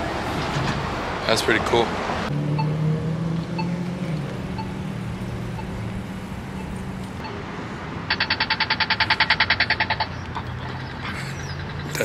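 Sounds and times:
crossing signal locator tick: 2.5 - 2.8, 3.4 - 7.4, 8.1 - 12.0
rapid crossing signal ticking: 3.5 - 12.0.

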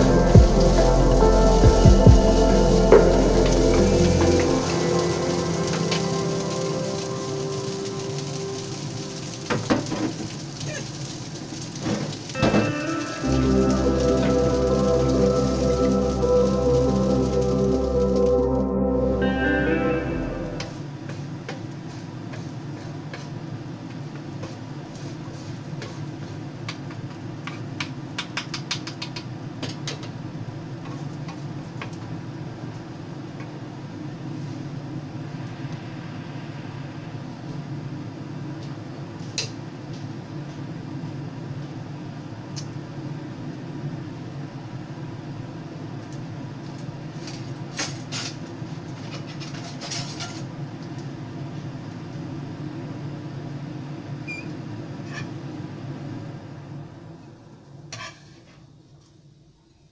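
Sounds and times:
low rumble: 0.0 - 9.5, 12.6 - 20.9, 34.8 - 39.2
rice frying in a pan: 0.0 - 18.4, 20.9 - 34.8, 38.4 - 54.2, 57.8 - 58.6
spatula scraping a pan: 57.9 - 58.5.

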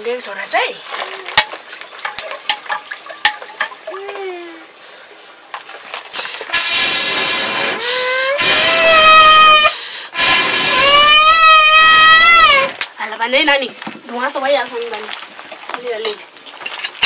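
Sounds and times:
loud hissing rush: 6.4 - 12.8
young child crying: 10.8 - 12.7.

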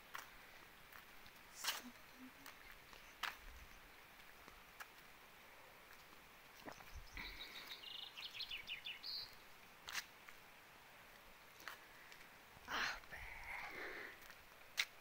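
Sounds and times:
songbird chirping: 0.0 - 14.9
rain hiss: 0.0 - 15.0.

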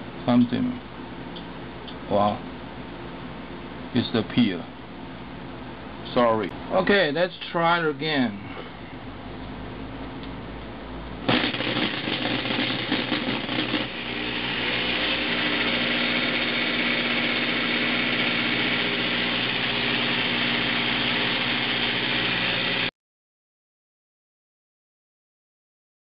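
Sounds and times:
electric drill motor running: 11.3 - 22.9.

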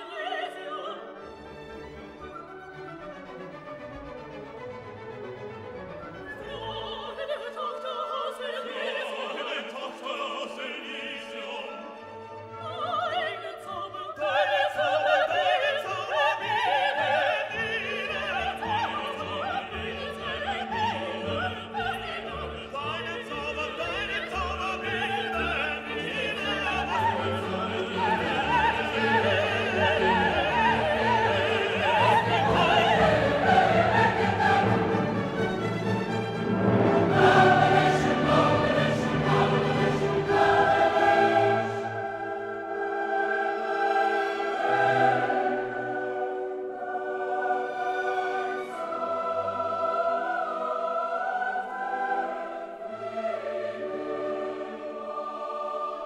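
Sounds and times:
operatic singing with orchestra: 0.0 - 56.0.

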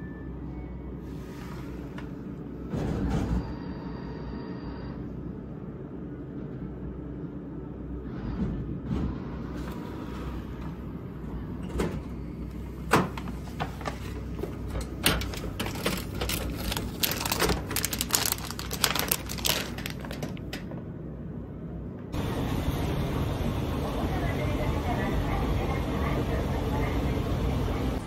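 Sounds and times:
plastic packet crinkling: 15.4 - 20.6.

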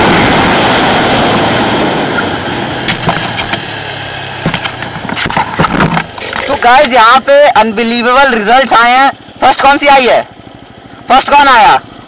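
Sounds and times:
motorcycle engine hum: 0.0 - 12.0
clicks and knocks: 4.4 - 6.6.

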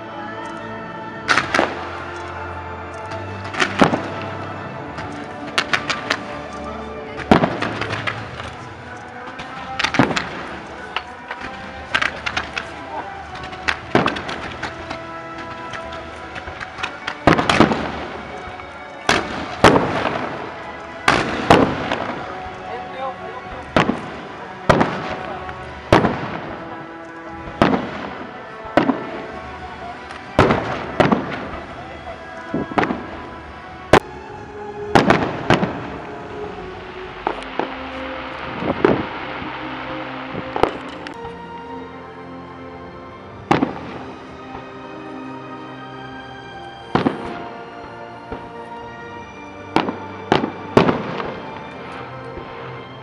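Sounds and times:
background music: 0.0 - 53.0
firework shells bursting: 1.3 - 2.4, 3.0 - 6.6, 7.2 - 22.7, 27.5 - 31.7, 37.0 - 41.3.

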